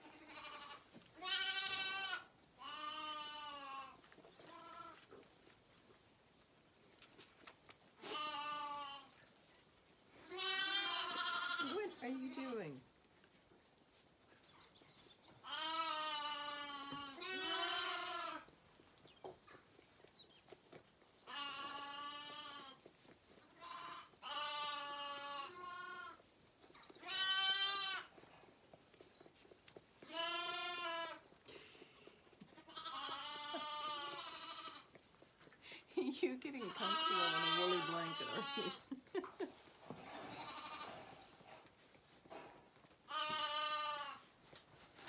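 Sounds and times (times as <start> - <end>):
lambs bleating: 0.0 - 5.1, 8.0 - 9.1, 10.2 - 12.6, 15.4 - 18.5, 21.2 - 22.8, 23.5 - 26.2, 27.0 - 28.2, 30.0 - 31.2, 32.5 - 35.0, 36.6 - 38.9, 40.1 - 41.4, 43.1 - 44.3.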